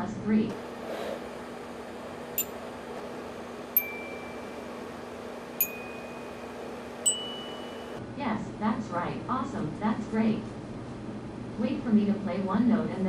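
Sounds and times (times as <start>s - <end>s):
glockenspiel notes struck: 3.8s - 4.8s, 5.6s - 8.0s.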